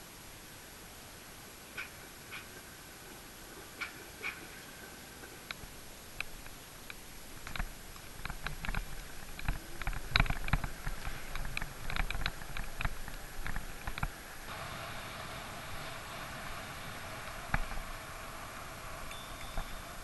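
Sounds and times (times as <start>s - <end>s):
bicycle clicks and rattles: 6.2s - 14.2s.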